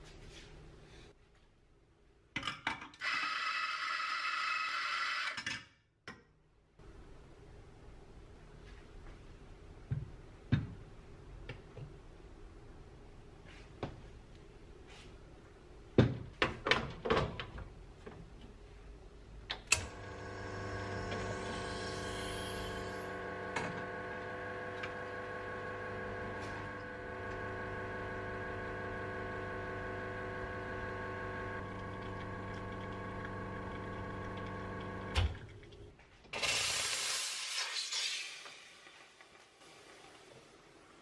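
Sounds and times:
electric appliance humming: 19.8 - 35.4.

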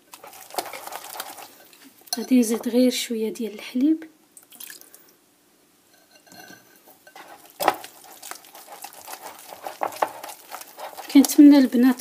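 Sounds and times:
whisk beating batter in bowl: 0.1 - 1.7, 7.0 - 12.0.

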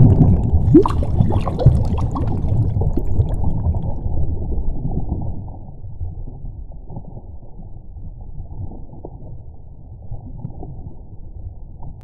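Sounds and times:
underwater bubbling: 0.0 - 7.6.

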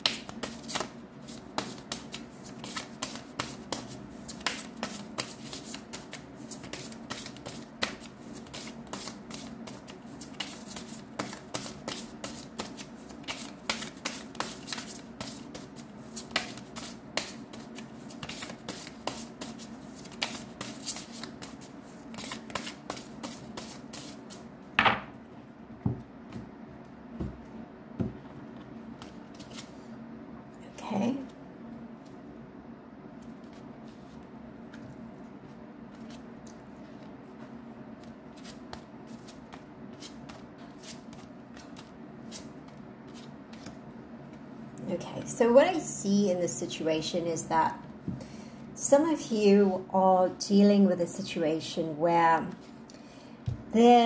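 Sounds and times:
cards being shuffled: 0.0 - 24.4, 29.0 - 29.8.

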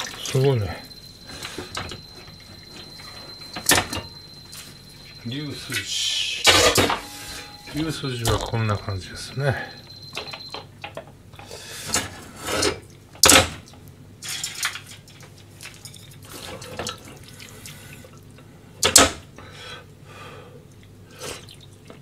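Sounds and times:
liquid sloshing in a pot: 14.2 - 18.3.

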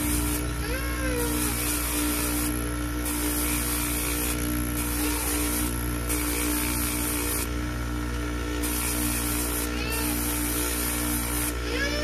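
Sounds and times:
polishing motor humming: 0.0 - 12.0
metal sanding hiss: 1.2 - 7.5, 8.6 - 11.7.

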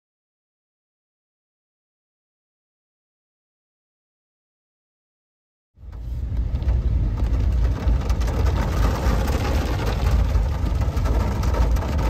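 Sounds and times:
heavy rain falling: 5.8 - 12.0
wind gusting on microphone: 5.8 - 12.0.

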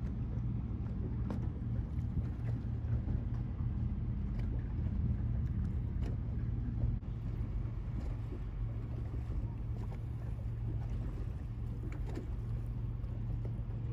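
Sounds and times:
boat engines droning: 0.0 - 13.9.

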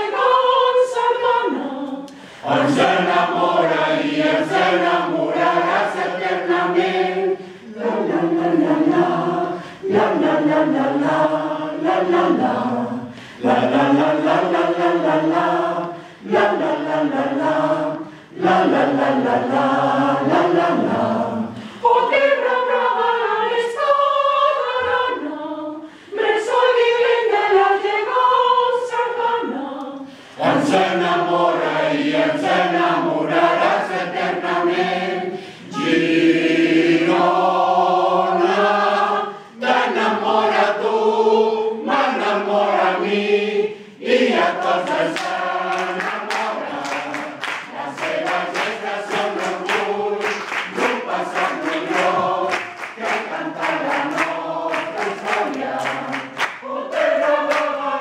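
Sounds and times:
mixed choir singing a cappella: 0.0 - 58.0
hand claps: 44.9 - 57.8.

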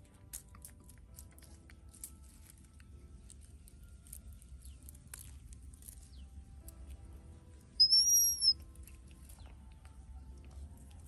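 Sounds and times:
bird whistled note: 7.8 - 8.6.

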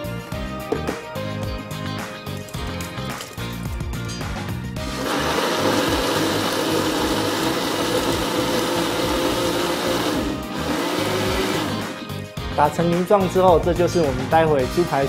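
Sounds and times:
blender running: 4.8 - 12.0.

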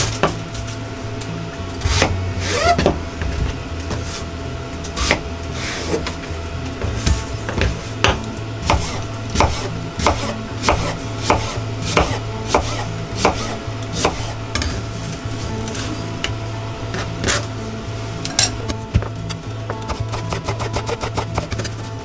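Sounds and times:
knife chopping on cutting board: 7.1 - 14.3.

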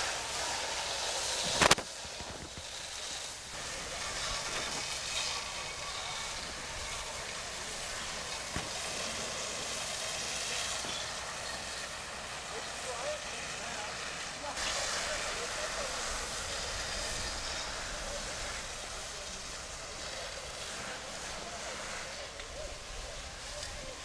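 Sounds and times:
sharp crack: 0.0 - 3.4, 4.0 - 11.2
fire hose jet hissing: 0.0 - 24.0.

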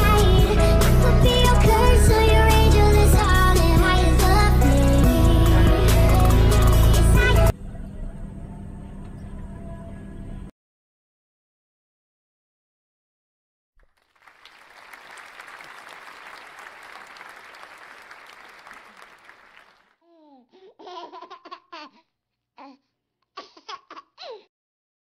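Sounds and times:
applause: 13.8 - 19.9.

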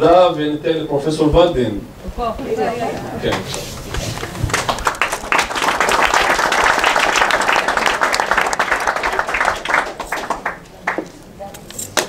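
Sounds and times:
audience applauding: 3.3 - 11.1.

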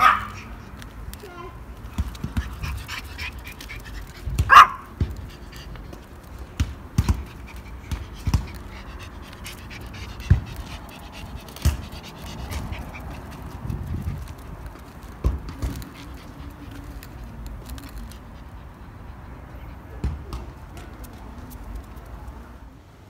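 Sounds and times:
dog panting: 2.0 - 21.9.

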